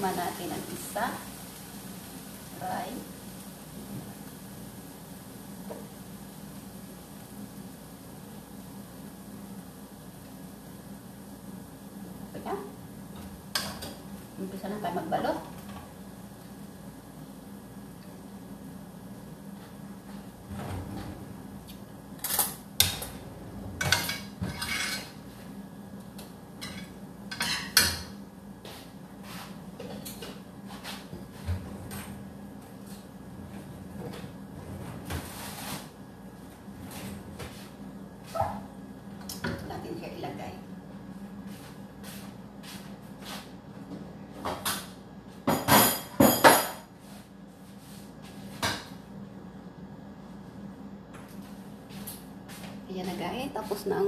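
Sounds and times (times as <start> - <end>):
steady low hum: 0.0 - 46.2
kitchen knocks and clatters: 22.2 - 25.2, 26.6 - 28.2, 43.9 - 46.9, 48.5 - 49.0
pans and utensils clattering: 23.8 - 25.2, 45.5 - 46.9.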